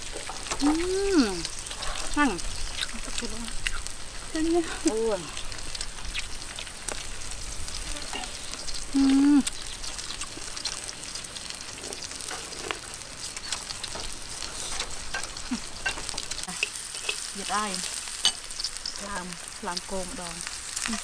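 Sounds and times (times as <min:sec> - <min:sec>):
beef sizzling and crackling: 0:00.0 - 0:21.0
person humming: 0:00.6 - 0:01.5, 0:08.9 - 0:09.5.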